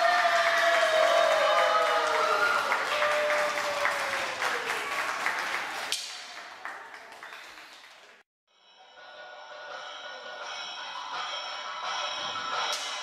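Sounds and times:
audience applause: 0:00.0 - 0:08.2
music: 0:08.5 - 0:13.0.

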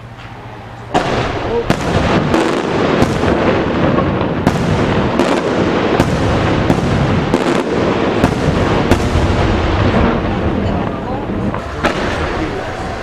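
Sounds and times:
firework shells bursting: 0:00.9 - 0:10.7.

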